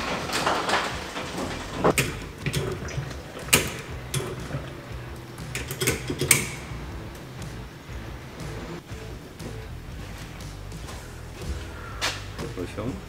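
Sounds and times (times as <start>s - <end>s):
sharp mechanical clicks and knocks: 0.0s - 7.3s
low steady hum: 0.0s - 13.0s.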